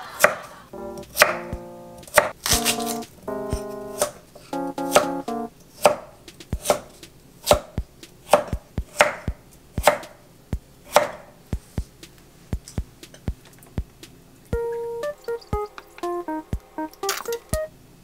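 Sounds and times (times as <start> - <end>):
knife chopping on wooden board: 5.8 - 10.1, 10.9 - 11.7.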